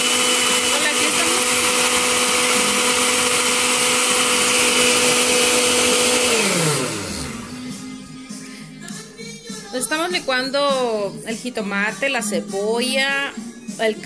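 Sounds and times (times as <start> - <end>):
blender running: 0.0 - 7.8.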